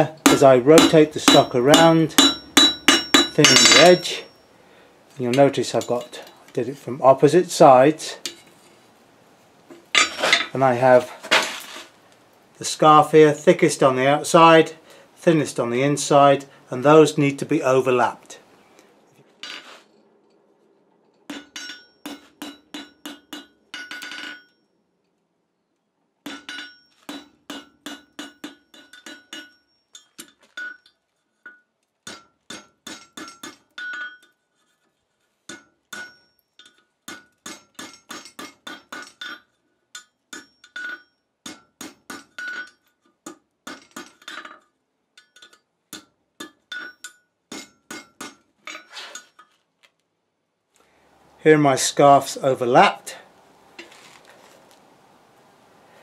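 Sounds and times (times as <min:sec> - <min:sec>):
hammer striking on anvil: 0:00.2 - 0:04.3, 0:21.3 - 0:24.6, 0:26.3 - 0:29.7, 0:35.5 - 0:36.4.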